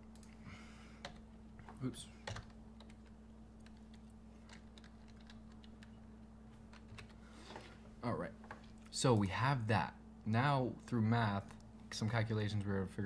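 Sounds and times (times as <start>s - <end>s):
steady low hum: 0.0s - 13.0s
computer keyboard keystrokes: 2.2s - 6.0s, 6.7s - 7.2s.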